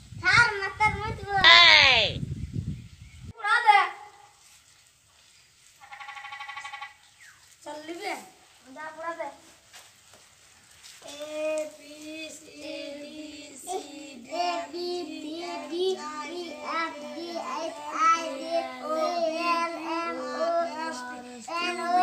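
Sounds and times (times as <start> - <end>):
child singing: 11.0 - 22.0.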